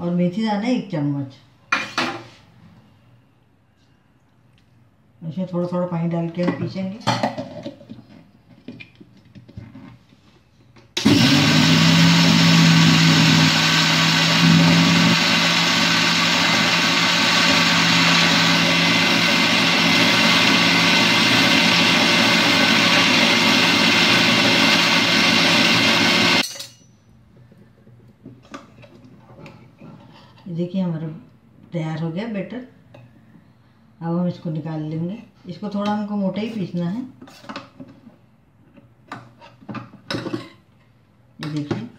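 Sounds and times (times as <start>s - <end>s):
mixer grinder running: 11.0s - 26.4s.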